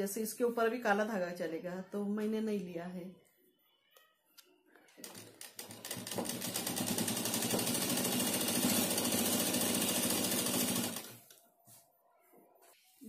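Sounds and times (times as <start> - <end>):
sewing machine stitching: 5.0 - 11.2.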